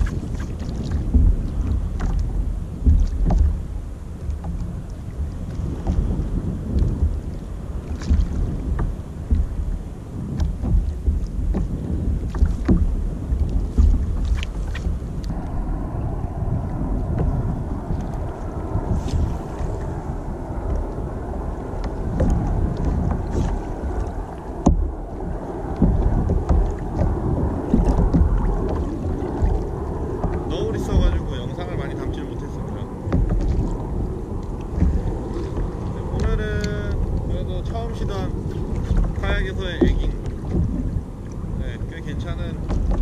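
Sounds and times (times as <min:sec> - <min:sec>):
water slapping against hull: 0:00.0 - 0:43.0
wind buffeting microphone: 0:00.0 - 0:43.0
hiss of moving water: 0:14.3 - 0:31.1.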